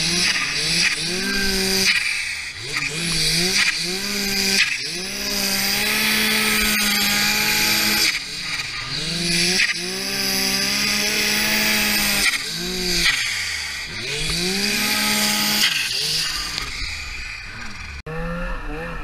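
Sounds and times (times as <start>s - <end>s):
snowmobile engine revving: 0.0s - 19.0s.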